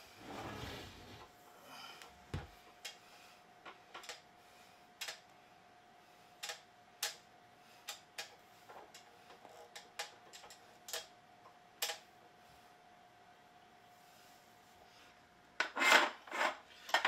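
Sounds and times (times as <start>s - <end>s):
clicks of small plastic parts: 6.4s - 7.2s.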